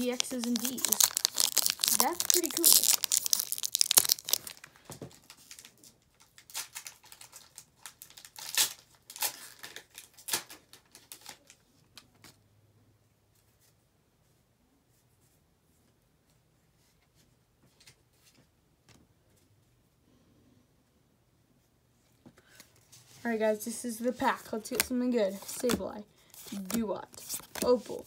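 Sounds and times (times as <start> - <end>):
foil wrapper crinkling and tearing: 0.0 - 11.6.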